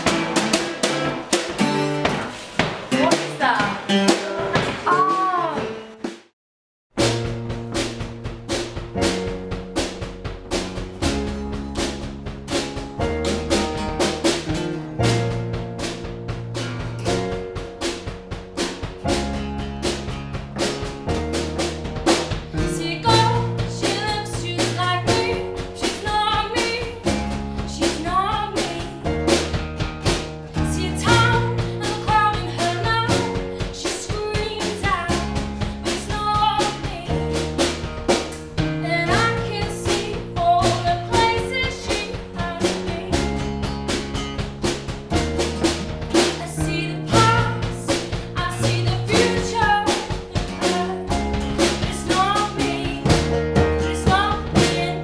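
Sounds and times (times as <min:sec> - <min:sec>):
acoustic guitar: 0:00.0 - 0:06.1, 0:07.0 - 0:55.0
drum kit beat: 0:00.0 - 0:06.3, 0:06.9 - 0:55.0
woman singing: 0:04.8 - 0:05.8, 0:22.6 - 0:29.1, 0:30.6 - 0:37.2, 0:38.8 - 0:43.3, 0:46.4 - 0:55.0.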